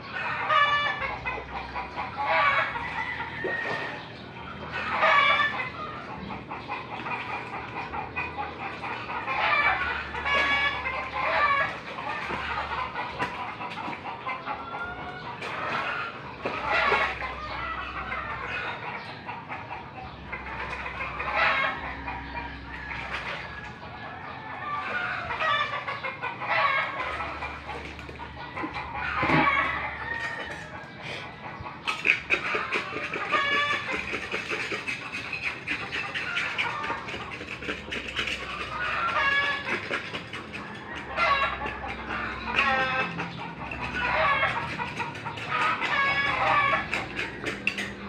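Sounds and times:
chickens clucking: 0:00.0 - 0:48.0
rooster crowing: 0:02.3 - 0:04.0.

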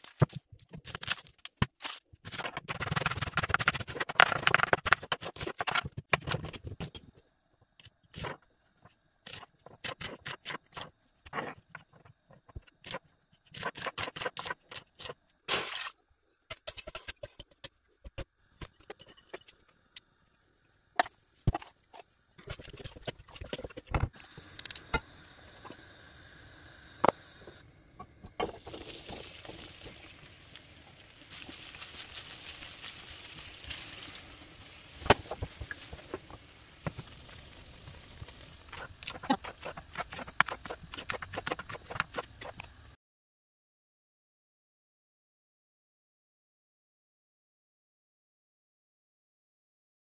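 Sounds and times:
steady hiss: 0:24.2 - 0:38.8
okra sizzling in a pan: 0:28.3 - 0:41.5.

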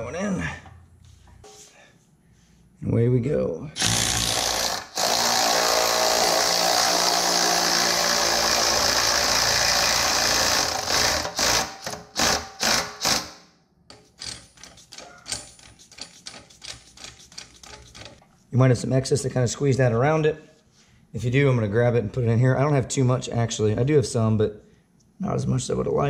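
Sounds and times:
electric ratchet running: 0:03.8 - 0:13.4.

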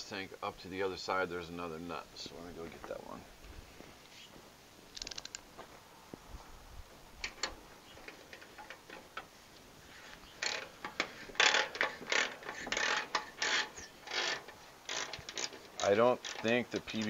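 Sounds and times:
ratchet wrench clicking: 0:05.0 - 0:05.4, 0:11.4 - 0:16.6.

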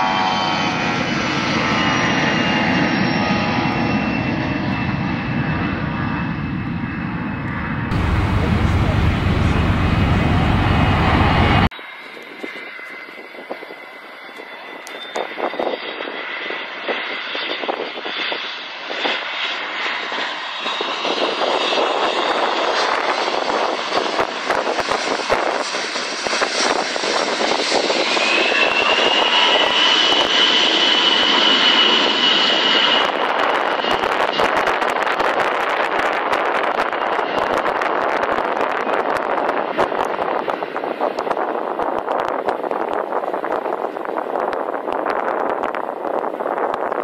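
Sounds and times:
high engine whine: 0:00.0 - 0:16.1
jet aircraft flying over: 0:00.0 - 0:47.0.

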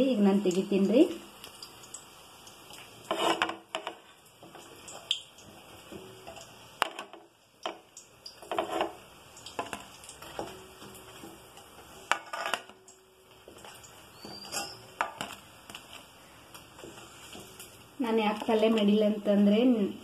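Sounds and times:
metal spoon scraping metal pan: 0:03.1 - 0:04.0, 0:08.4 - 0:09.0, 0:12.0 - 0:12.8, 0:13.6 - 0:16.0
spoon clinking against plate: 0:14.2 - 0:15.3.

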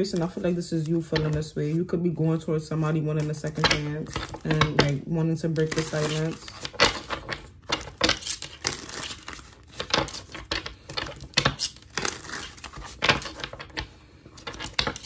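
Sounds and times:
cards being shuffled: 0:03.1 - 0:15.0.

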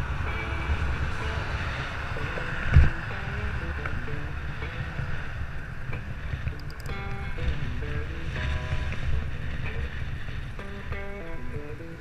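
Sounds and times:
road noise: 0:00.0 - 0:12.0
wind buffeting microphone: 0:00.0 - 0:12.0.

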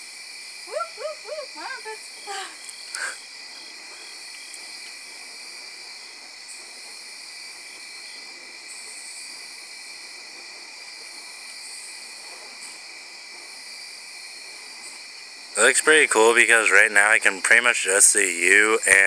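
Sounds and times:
high insect buzz: 0:00.0 - 0:19.0
insects chorus drone: 0:00.0 - 0:19.0.

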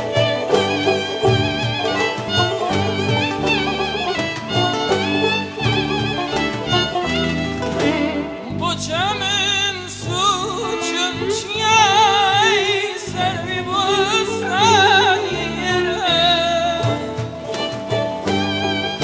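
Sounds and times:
live band with violin: 0:00.0 - 0:19.0
man singing with vocal ornaments: 0:08.5 - 0:17.1.

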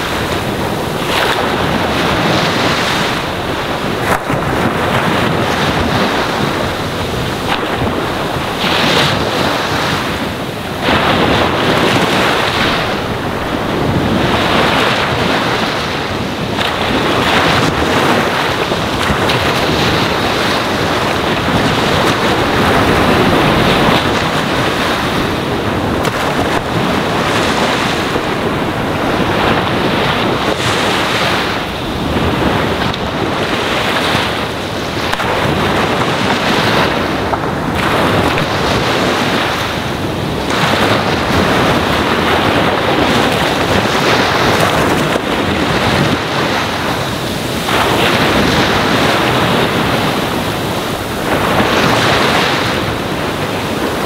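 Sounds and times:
ocean waves washing on shore: 0:00.0 - 0:54.0.

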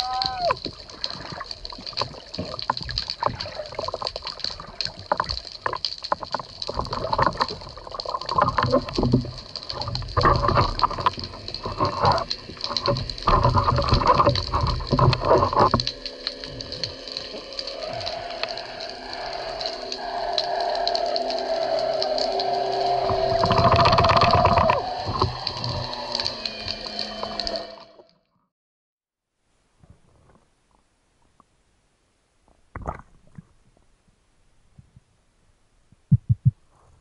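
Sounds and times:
water sloshing and churning: 0:00.0 - 0:28.1
fine crackle of clicks: 0:00.0 - 0:28.2.

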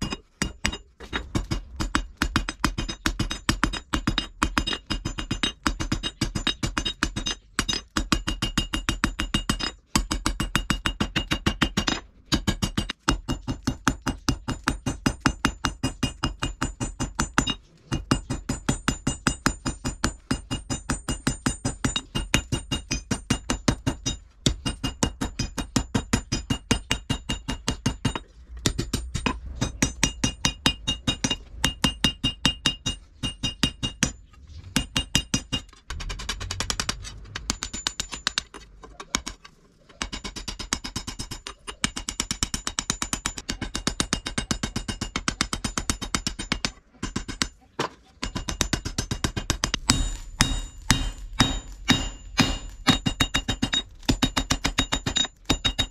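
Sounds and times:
hammer striking steel on anvil: 0:00.0 - 0:34.2, 0:34.8 - 0:39.4, 0:40.0 - 0:47.6, 0:48.2 - 0:55.9.

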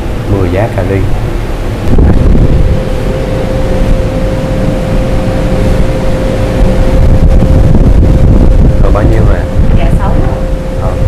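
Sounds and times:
low machine rumble: 0:00.0 - 0:11.0
mid-pitched hum: 0:00.0 - 0:11.0.

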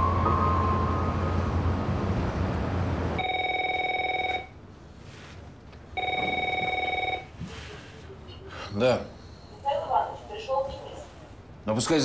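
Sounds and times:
telephone warbling electronic ring: 0:03.2 - 0:04.5, 0:06.0 - 0:07.3.

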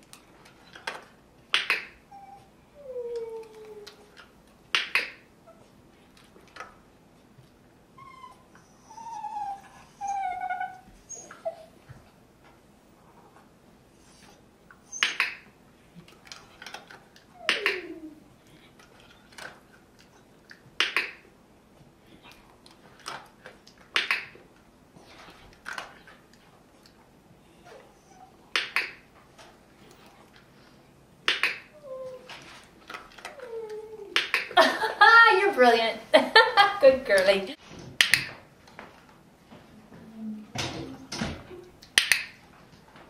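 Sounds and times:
dog whimpering: 0:02.1 - 0:04.2, 0:08.0 - 0:11.8, 0:17.3 - 0:18.4, 0:27.6 - 0:28.4, 0:31.7 - 0:32.4, 0:33.2 - 0:34.3.

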